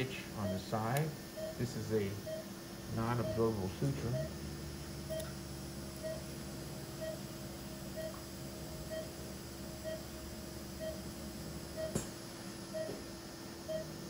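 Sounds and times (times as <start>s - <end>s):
low equipment hum: 0.0s - 14.0s
patient monitor beeping: 0.4s - 4.4s, 5.1s - 5.4s, 6.0s - 6.3s, 7.0s - 7.3s, 7.9s - 8.2s, 8.9s - 9.2s, 9.8s - 10.1s, 10.8s - 11.1s, 11.7s - 12.0s, 12.7s - 13.0s, 13.7s - 13.9s.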